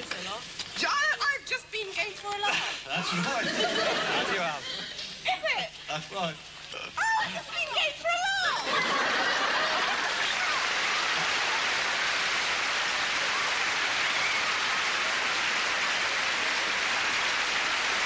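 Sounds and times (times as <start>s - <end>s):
audience applauding: 8.8s - 18.0s.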